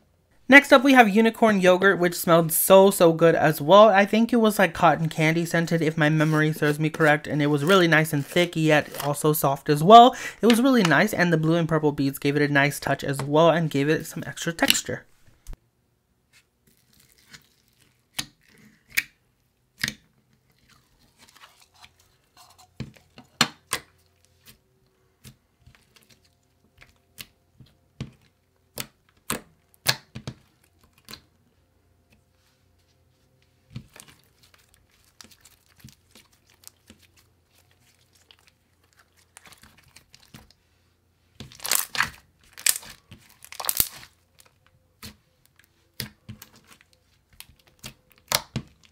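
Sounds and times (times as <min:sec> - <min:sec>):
slime clicking and popping: 0:41.5 - 0:44.1, 0:47.4 - 0:48.9.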